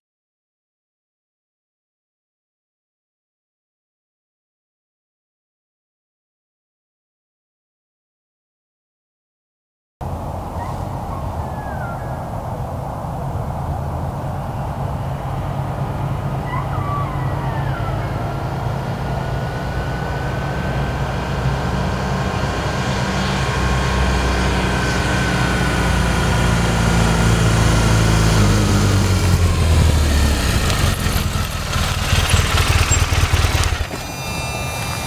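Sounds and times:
motorcycle engine running: 13.1s - 35.0s.

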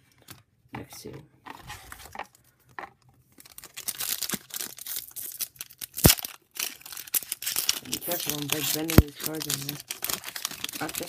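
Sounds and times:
wrapper tearing and crinkling: 3.4s - 11.0s.

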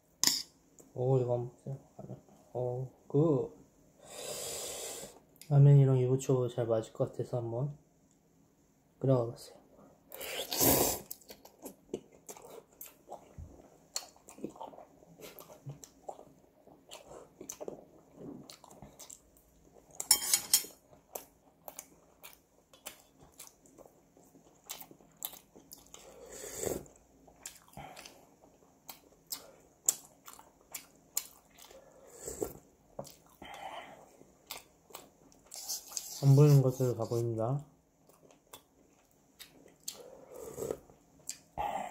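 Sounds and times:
person chewing noodles: 10.1s - 20.1s, 20.8s - 36.6s, 38.0s - 41.9s.

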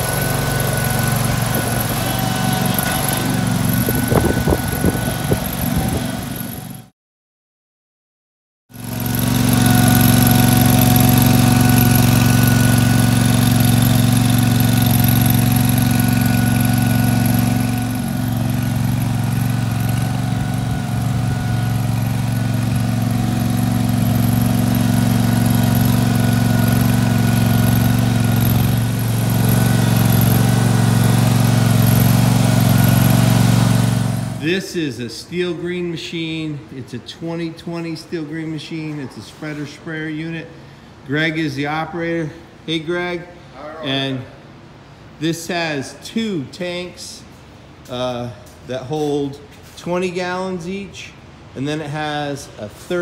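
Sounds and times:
small engine running: 0.0s - 6.9s, 8.7s - 34.4s.

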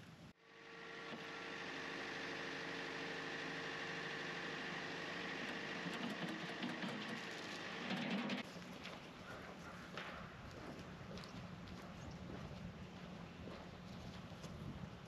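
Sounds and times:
tractor diesel engine running: 0.5s - 8.4s.

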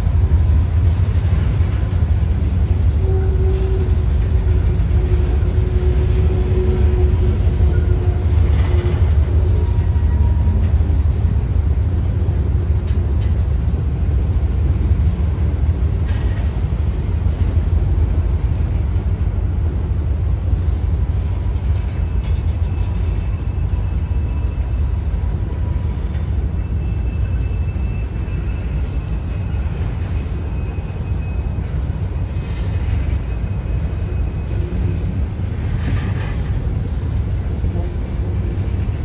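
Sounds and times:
train wheels rumbling on rail: 0.0s - 39.0s
faint wheel squeal: 22.0s - 31.7s.

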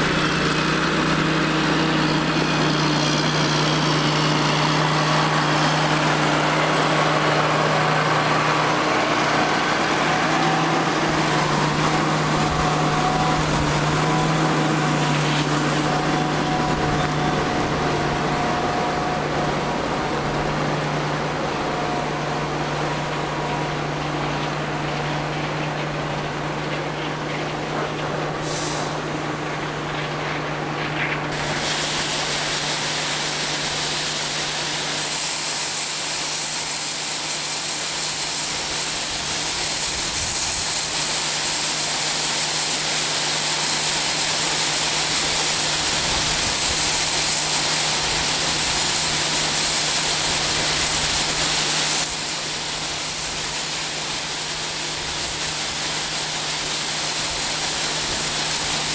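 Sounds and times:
low engine hum: 0.0s - 42.7s
loud mechanical hiss: 0.0s - 58.9s.

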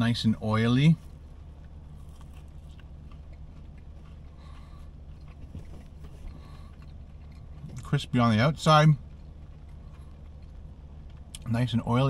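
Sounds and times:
steady low hum: 0.0s - 12.0s
crunching and chewing hash brown: 0.4s - 11.7s
small crackles: 1.5s - 8.0s.

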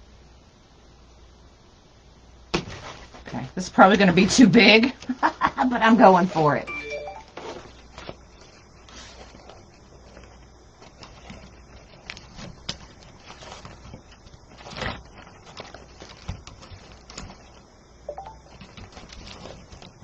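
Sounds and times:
ribbon rustling and crinkling: 7.3s - 17.8s, 18.4s - 20.0s
soft clicks and crackles: 7.5s - 20.0s.

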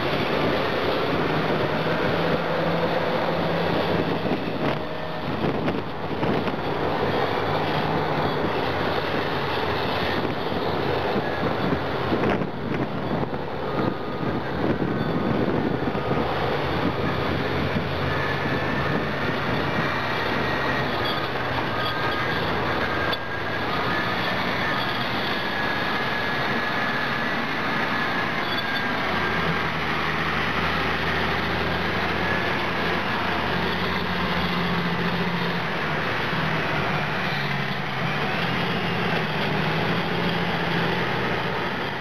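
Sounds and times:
heavy diesel engines under load: 0.0s - 42.0s
thin high squeal: 18.0s - 29.5s.

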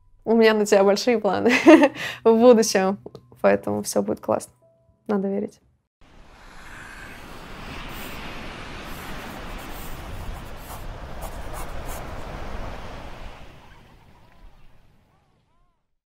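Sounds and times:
sea waves washing on shore: 6.1s - 15.2s.

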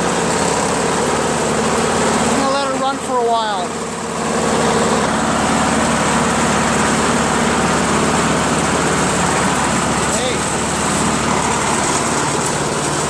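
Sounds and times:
lawn mower engine running: 0.0s - 13.0s.

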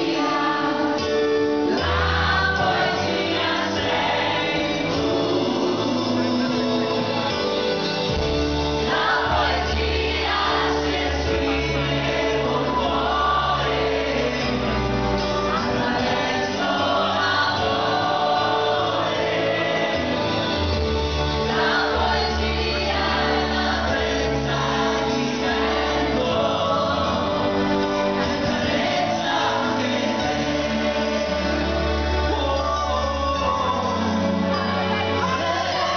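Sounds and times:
male and female voices singing: 0.0s - 7.3s, 8.8s - 35.9s
live pop band: 0.0s - 35.9s.

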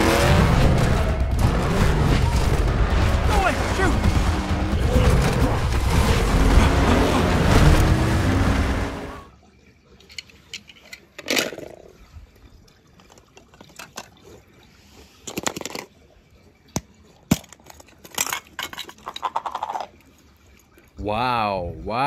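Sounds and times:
water splash: 0.0s - 9.3s
toy cars knocking and clicking: 10.0s - 11.8s, 15.2s - 15.9s, 16.8s - 19.9s.

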